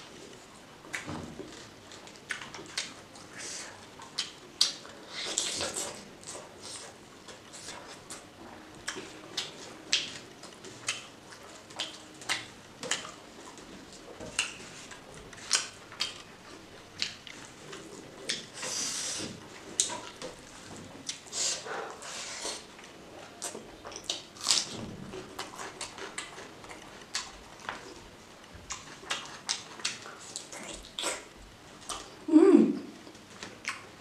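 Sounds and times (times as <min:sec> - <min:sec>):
wet mouth smacks and chewing: 0:04.0 - 0:06.9, 0:15.4 - 0:16.2, 0:28.7 - 0:32.2.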